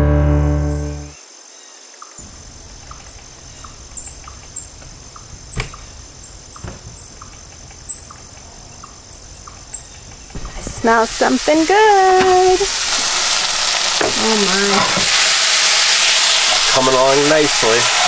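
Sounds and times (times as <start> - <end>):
birds chirping: 1.8 - 18.0.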